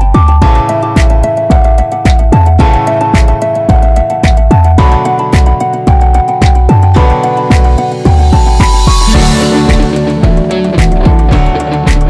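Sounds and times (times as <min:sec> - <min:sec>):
electronic music: 0:00.0 - 0:12.0
deep bass kicks: 0:05.9 - 0:12.0.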